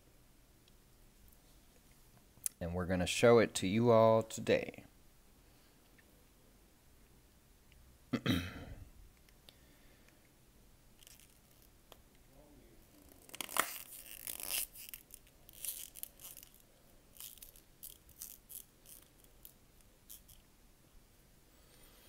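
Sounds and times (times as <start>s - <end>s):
plastic packaging rustling: 12.9s - 20.4s.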